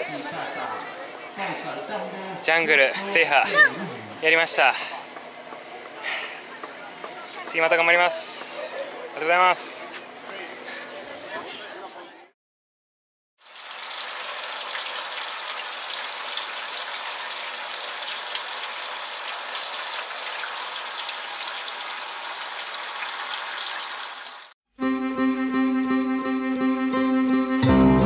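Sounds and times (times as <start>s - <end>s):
shower water spraying: 13.4s - 24.6s.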